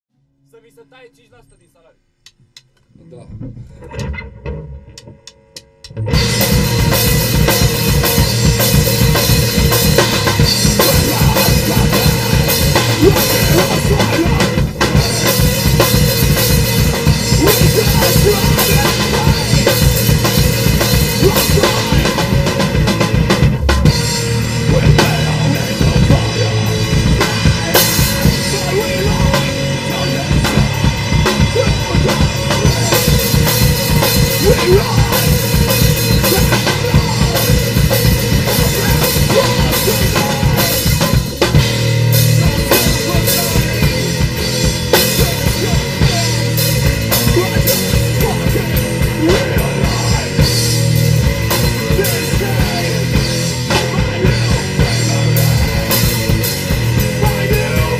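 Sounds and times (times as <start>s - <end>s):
drum kit playing: 2.2s - 57.9s
low bass guitar notes: 2.4s - 57.9s.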